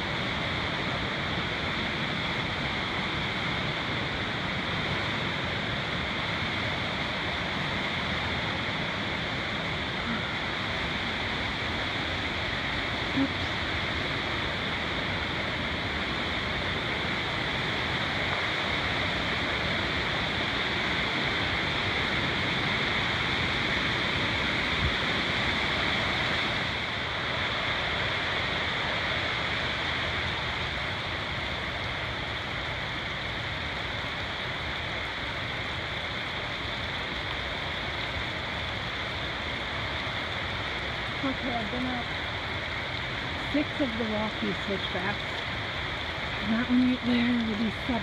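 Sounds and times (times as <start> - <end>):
creek rushing over rocks: 0.0 - 48.0.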